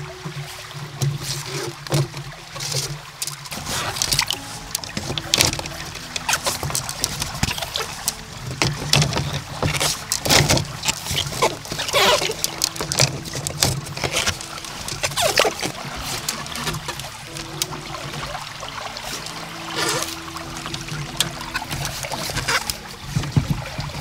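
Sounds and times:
stems rustling and knocking: 0.0s - 24.0s.

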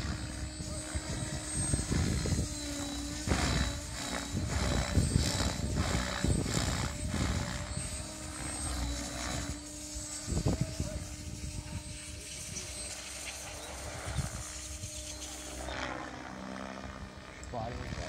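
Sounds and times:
model helicopter rotor hum: 0.0s - 18.0s.

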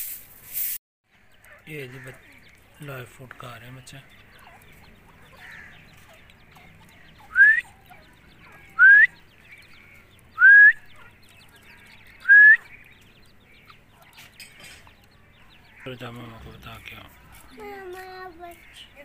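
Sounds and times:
bird chicks whistled peeps: 4.3s - 15.8s.

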